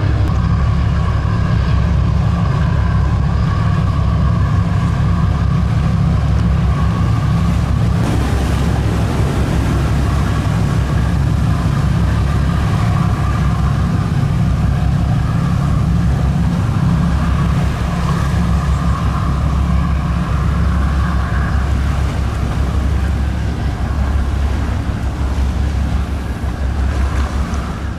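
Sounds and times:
boat wake rushing water: 0.0s - 27.9s
diesel engine rumble: 0.0s - 27.9s.

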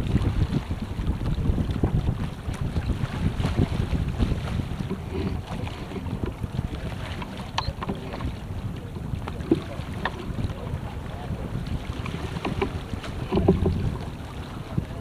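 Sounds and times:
water rushing past hull: 0.0s - 15.0s
wind buffeting microphone: 0.0s - 15.0s
light knocks and clicks: 12.0s - 13.8s.

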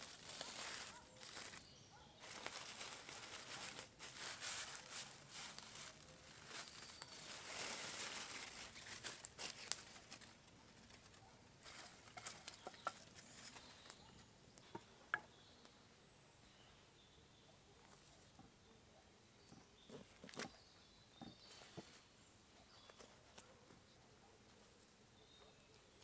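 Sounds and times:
aluminium foil crinkling: 0.0s - 14.2s.

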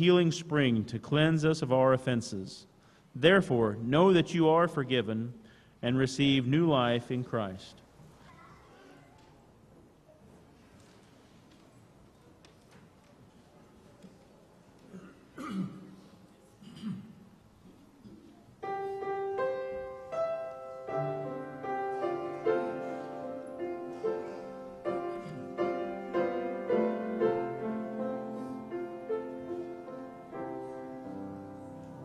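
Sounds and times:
soft rustles: 7.9s - 14.9s
grand piano chords and melody: 18.6s - 32.0s.

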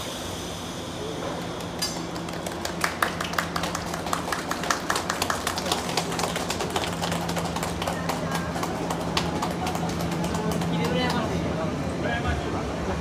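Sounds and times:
steady low hum: 0.0s - 13.0s
crowd hand-clapping: 1.6s - 11.5s.

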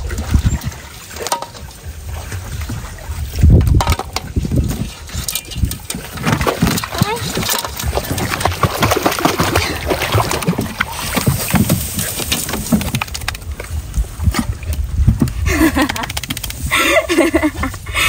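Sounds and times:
water splashing around boat: 0.0s - 18.0s
knocks and clatter: 3.5s - 16.6s.

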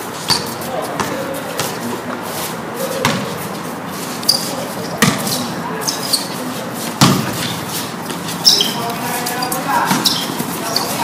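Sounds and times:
court background noise: 0.0s - 11.0s
basketball knocking on court: 3.0s - 3.3s, 5.0s - 5.3s, 7.0s - 7.4s.

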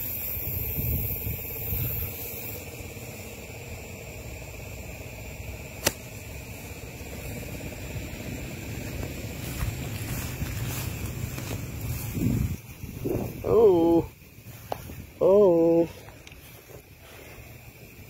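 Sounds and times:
pushing through tall grass: 5.7s - 17.8s
sharp click: 5.8s - 6.1s
microphone handling rumble: 8.7s - 15.2s.

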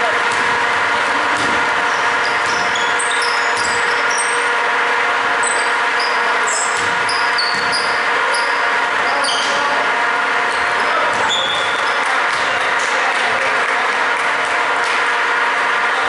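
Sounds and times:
sneakers squeaking on gym floor: 1.3s - 4.5s, 5.4s - 9.7s, 10.5s - 12.8s.

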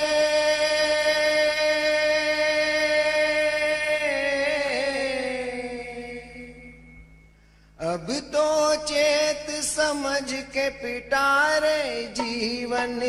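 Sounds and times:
man singing a long note: 0.0s - 6.9s, 7.8s - 13.0s.

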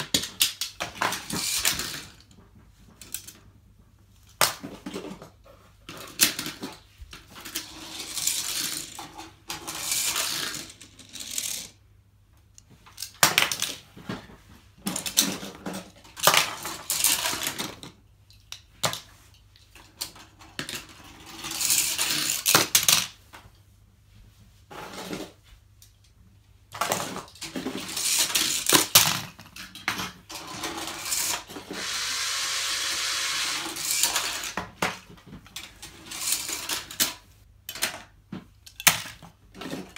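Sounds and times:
toy cars rattling down plastic track: 0.0s - 2.4s, 5.9s - 11.8s, 14.9s - 18.0s, 19.8s - 23.1s, 26.7s - 38.1s.

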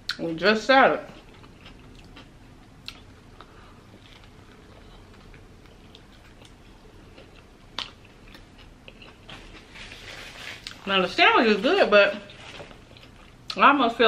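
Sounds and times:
person chewing: 1.1s - 10.9s, 12.3s - 13.6s.

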